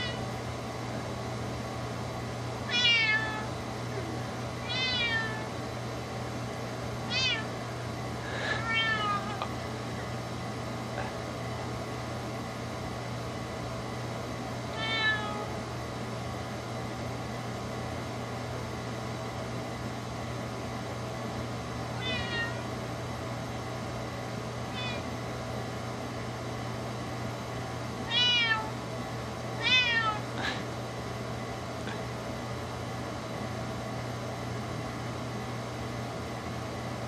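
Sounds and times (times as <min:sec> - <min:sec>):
steady low hum: 0:00.0 - 0:37.0
kitten meowing: 0:02.7 - 0:03.5, 0:04.6 - 0:05.5, 0:07.1 - 0:07.5, 0:08.6 - 0:09.4, 0:14.8 - 0:15.5, 0:22.0 - 0:22.6, 0:24.7 - 0:25.1, 0:28.1 - 0:28.7, 0:29.6 - 0:30.2.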